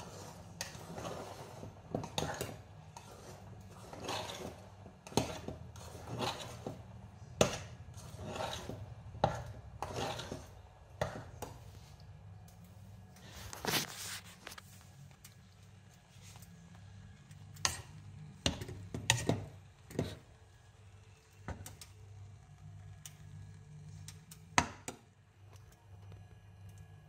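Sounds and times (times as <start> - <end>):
fork scraping meal in pot: 0.0 - 11.6, 17.5 - 20.3.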